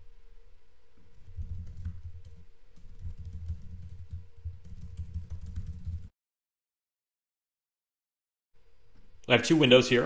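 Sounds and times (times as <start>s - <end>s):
typing on computer keyboard: 1.2s - 6.1s.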